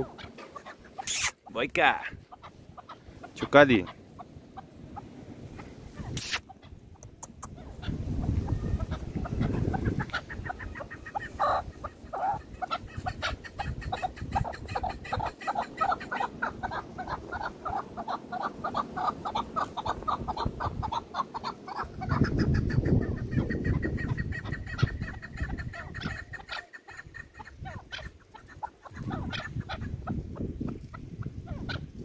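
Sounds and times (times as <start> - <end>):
partridges clucking: 0.0 - 1.5, 6.1 - 7.6.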